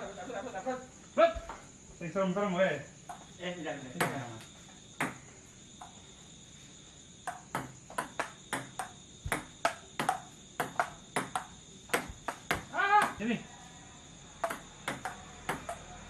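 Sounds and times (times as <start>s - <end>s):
crickets chirping: 0.0s - 16.0s
ping pong ball clicking off paddles: 5.0s - 5.2s, 7.2s - 13.2s, 14.4s - 16.0s.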